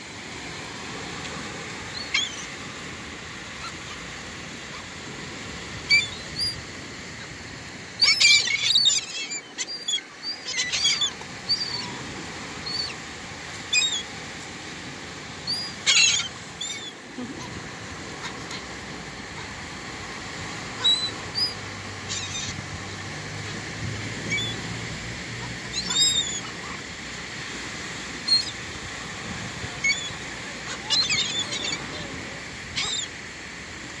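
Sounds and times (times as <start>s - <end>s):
surf hissing: 0.0s - 34.0s
gulls squealing: 1.9s - 2.6s, 8.0s - 13.0s, 15.5s - 18.7s, 25.4s - 26.9s, 29.6s - 33.2s.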